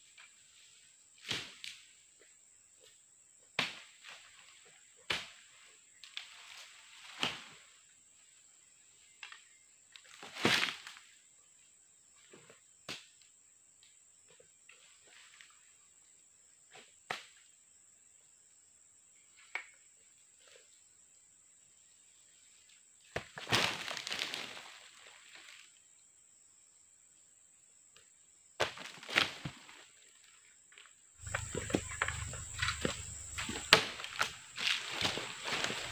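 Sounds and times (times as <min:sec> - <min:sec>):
leafy rustle: 0:23.4 - 0:25.8, 0:31.2 - 0:35.9
blade chopping palm fronds: 0:31.2 - 0:35.9.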